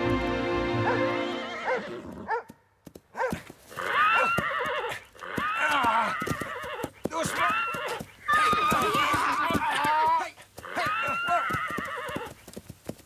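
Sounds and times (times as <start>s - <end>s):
music: 0.0s - 1.6s
horse whinnying: 0.8s - 2.4s, 3.7s - 12.4s.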